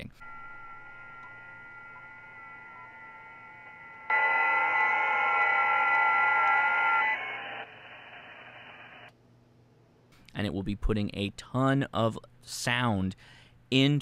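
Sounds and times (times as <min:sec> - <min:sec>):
steady digital radio tones: 0:00.0 - 0:09.1
radio hiss: 0:00.8 - 0:09.1.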